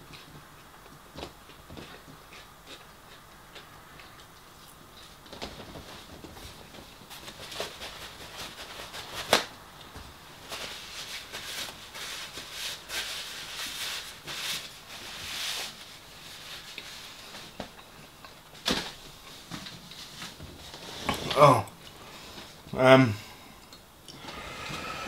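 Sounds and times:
paper tissue rustling: 5.1 - 9.5, 10.3 - 17.8, 18.5 - 21.1.

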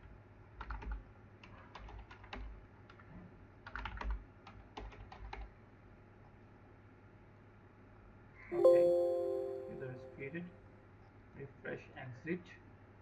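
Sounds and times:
computer keyboard typing: 0.6 - 1.0, 1.7 - 2.5, 3.6 - 5.5.

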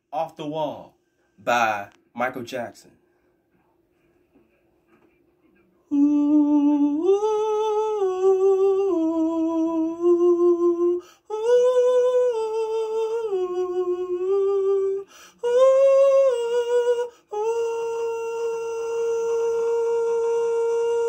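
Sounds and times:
man humming a melody: 5.9 - 21.0.

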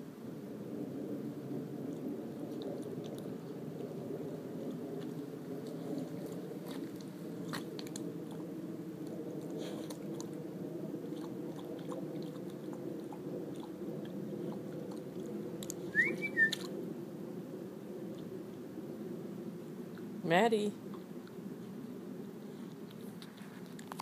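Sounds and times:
low background hum: 0.0 - 24.0
puppy licking and chewing: 1.9 - 4.0, 4.6 - 10.4, 11.0 - 15.8, 22.6 - 24.0.

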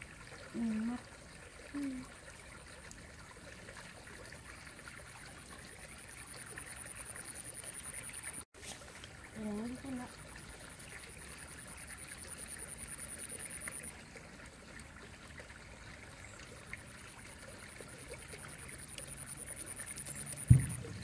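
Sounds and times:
low thump: 20.4 - 21.0.

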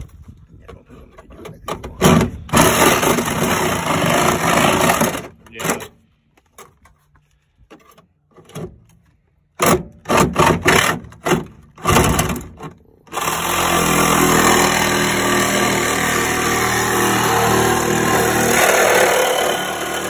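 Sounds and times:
reciprocating saw cutting metal: 2.2 - 5.3, 13.1 - 20.0.

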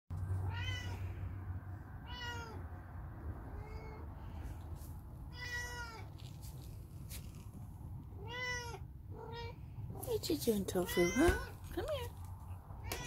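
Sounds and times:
kitten meowing: 0.4 - 1.0, 5.3 - 6.1, 8.2 - 9.6.

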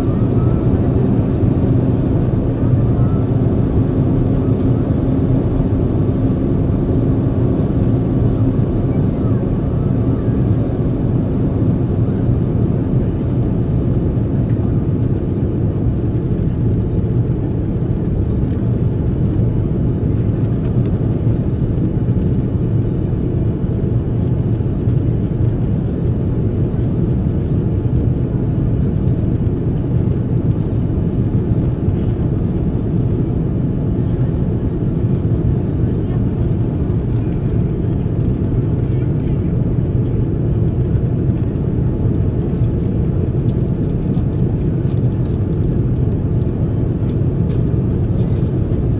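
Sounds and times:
jet engines rumbling: 0.0 - 48.9.

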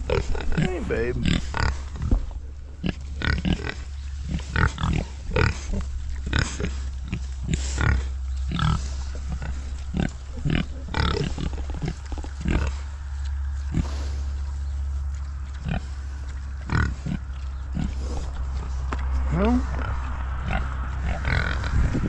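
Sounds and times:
pigs chewing: 0.0 - 22.0
pigs grunting: 0.0 - 22.0
steady low rumble: 0.0 - 22.0.

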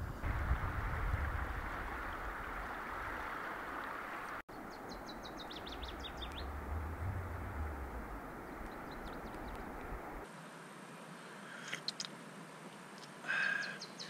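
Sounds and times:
low rumble: 0.0 - 3.3, 5.0 - 10.2
river water rushing: 0.2 - 10.3
songbird high chirps: 4.5 - 10.2.

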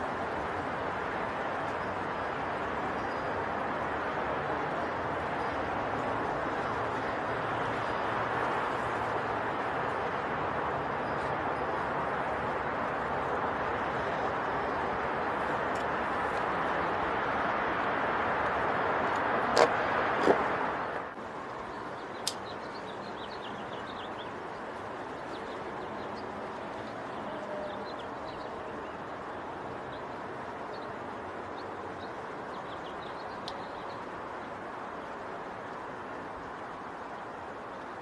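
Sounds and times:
steady outdoor rush: 0.0 - 38.0
small birds chirping faintly: 21.4 - 38.0
sharp clicks: 22.2 - 22.5.

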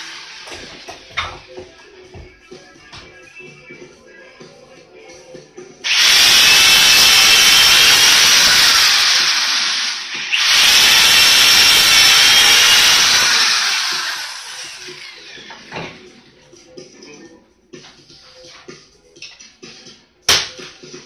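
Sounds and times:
electric drill boring into wood: 5.8 - 15.8.

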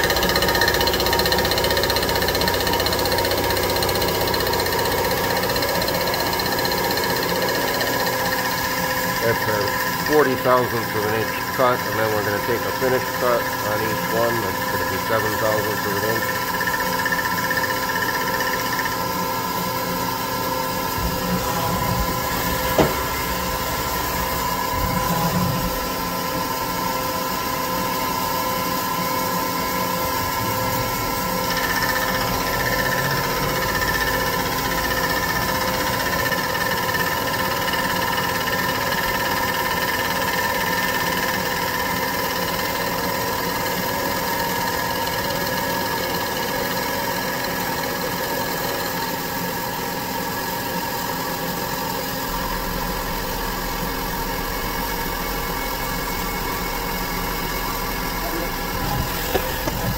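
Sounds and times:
milling machine cutting metal: 0.0 - 36.6, 49.6 - 59.9.

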